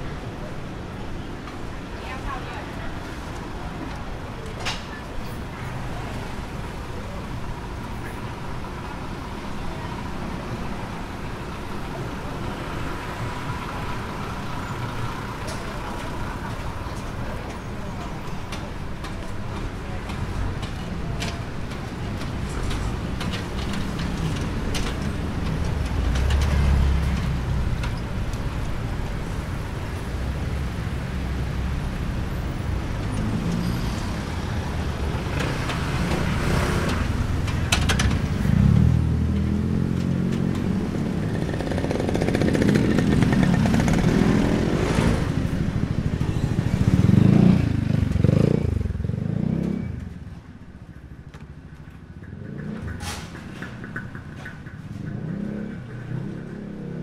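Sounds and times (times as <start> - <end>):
cars passing: 0.0 - 57.0
motorcycles passing: 32.7 - 57.0.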